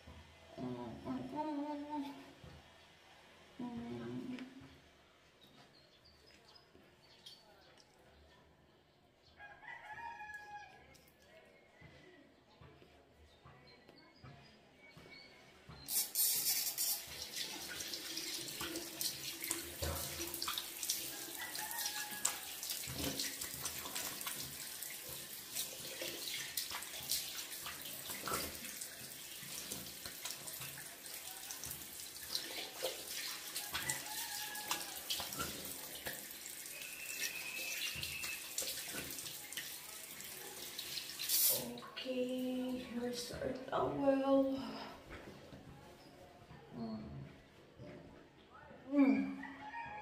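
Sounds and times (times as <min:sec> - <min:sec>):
water splashing: 0:16.2 - 0:42.0.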